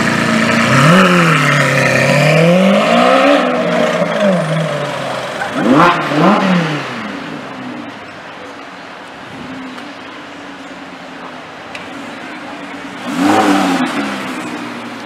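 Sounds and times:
sports car engine revving: 0.0 - 7.6, 11.9 - 15.0.

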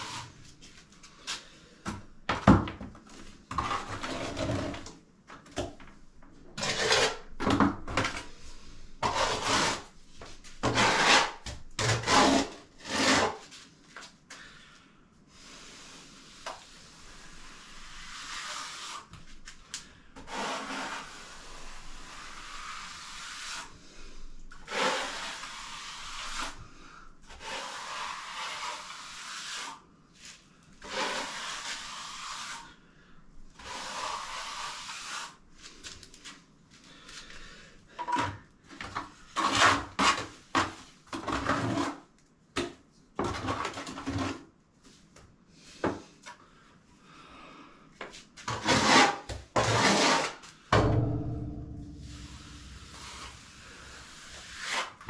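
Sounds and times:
trowel scraping cement on wall: 3.5 - 5.0, 6.6 - 8.4, 9.0 - 13.5, 16.3 - 19.3, 20.2 - 23.8, 24.5 - 26.6, 27.2 - 29.8, 30.8 - 32.8, 33.6 - 35.4, 38.0 - 42.1, 43.2 - 44.5, 48.4 - 50.5, 52.0 - 55.0.

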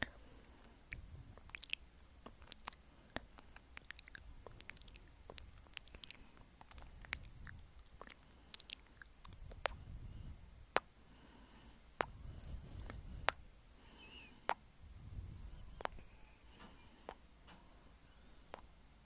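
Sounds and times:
wet mouth clicks licking: 0.9 - 9.8, 15.8 - 16.0
low rumble: 14.7 - 16.6.

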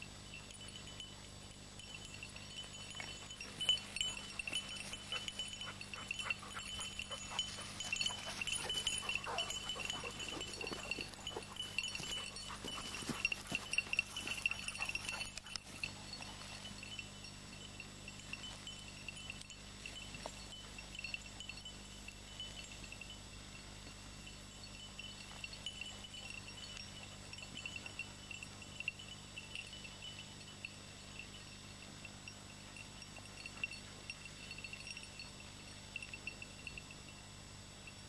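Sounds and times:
small bell jingling: 0.0 - 38.0
light rustling: 2.1 - 17.0.

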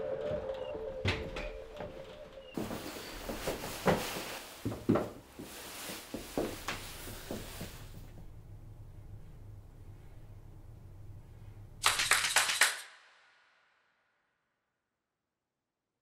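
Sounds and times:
rustling: 2.0 - 8.4.

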